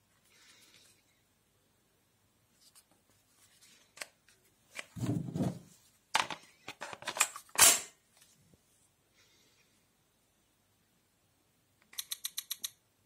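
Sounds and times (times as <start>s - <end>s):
plastic battery pack clicks and rattles: 6.2s - 7.7s.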